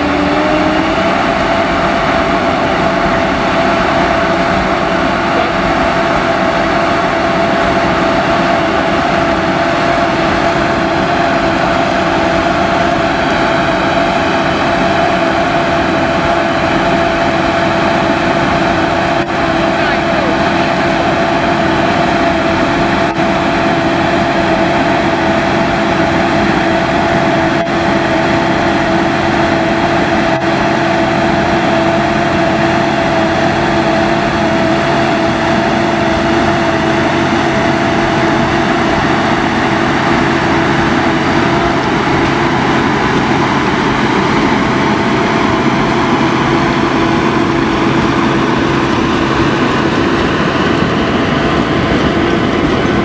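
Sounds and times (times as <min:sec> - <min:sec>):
tractor engine droning with whine: 0:00.0 - 0:53.0.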